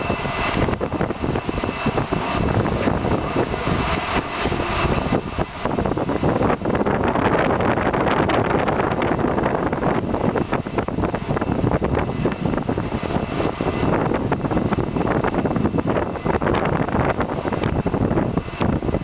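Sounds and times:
loud industrial noise: 0.0s - 19.0s
wind buffeting microphone: 0.0s - 19.0s.

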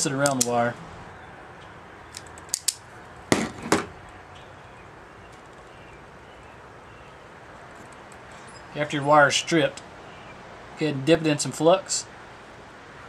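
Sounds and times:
wire stripper clicking: 0.2s - 0.6s, 2.1s - 2.8s
wire stripper snaps: 0.2s - 0.6s, 2.1s - 3.8s.

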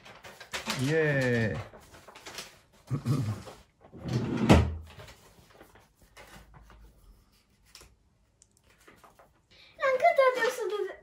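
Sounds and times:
sheet music rustling: 0.0s - 2.9s.

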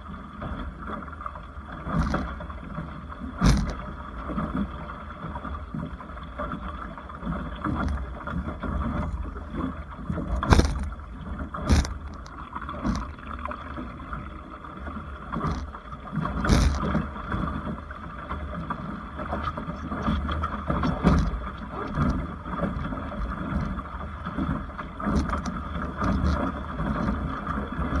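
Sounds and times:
water rushing against boat hull: 0.0s - 28.0s
waves knocking on hull: 0.0s - 28.0s
wind rumble on microphone: 3.3s - 4.7s, 7.5s - 14.2s, 15.1s - 17.9s.

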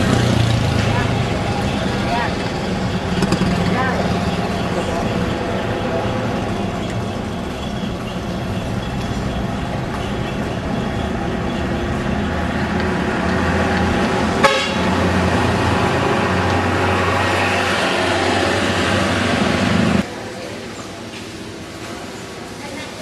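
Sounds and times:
vehicle engine drone: 0.0s - 22.5s
surrounding traffic: 0.0s - 23.0s
horn tooting: 14.2s - 17.6s.

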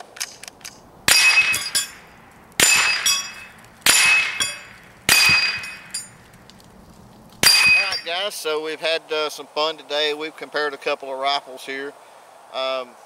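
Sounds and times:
rifle shot hitting steel target: 1.1s - 6.2s, 7.4s - 8.2s
steel plates knocked down: 1.1s - 6.3s, 7.4s - 8.2s.

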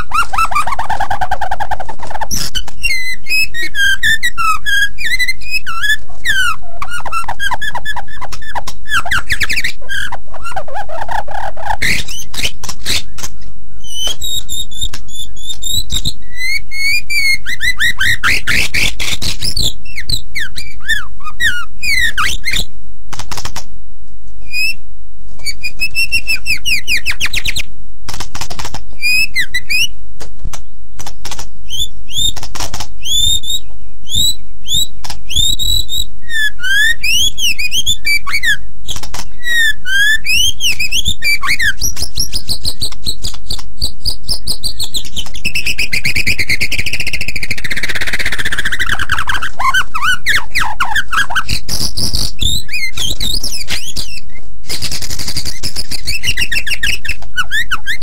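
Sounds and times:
bird singing whistled phrases and trills: 0.0s - 22.7s, 24.4s - 24.8s, 25.4s - 27.7s, 29.0s - 30.0s, 31.6s - 32.4s, 33.0s - 54.4s, 55.3s - 58.0s
steady low hum: 0.0s - 58.0s
sharp clicks: 11.9s - 16.2s, 23.1s - 23.7s, 28.1s - 29.0s, 30.2s - 35.8s, 38.9s - 39.3s, 40.7s - 49.6s, 51.5s - 57.4s.

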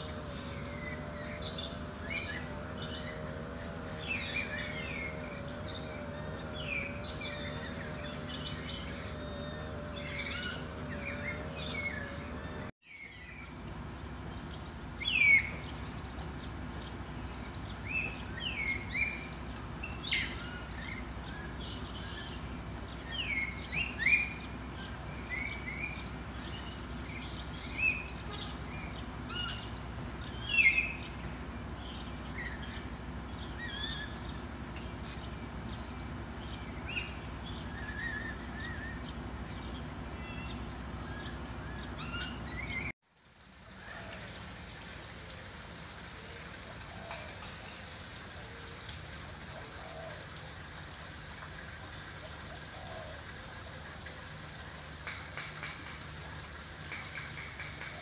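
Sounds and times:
high insect buzz: 0.0s - 12.7s, 13.9s - 42.9s
small birds chirping: 0.0s - 13.6s.

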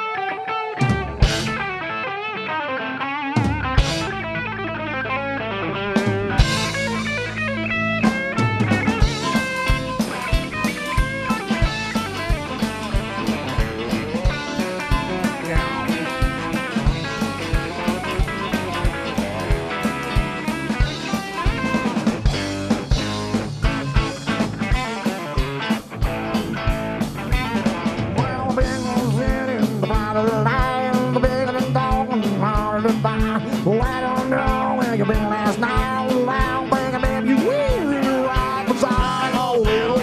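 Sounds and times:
electric guitar: 0.0s - 40.0s
drum kit beat: 0.8s - 2.5s, 3.3s - 4.9s, 5.6s - 40.0s.

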